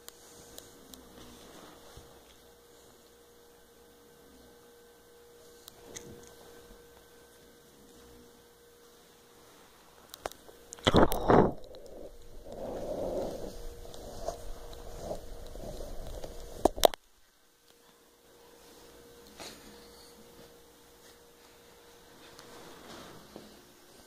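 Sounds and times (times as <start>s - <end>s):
faint electrical hum: 0.0s - 24.0s.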